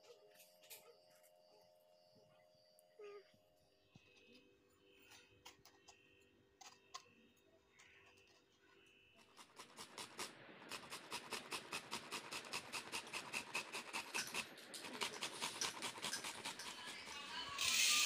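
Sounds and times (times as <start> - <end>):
mango grating on metal grater: 9.2 - 18.0.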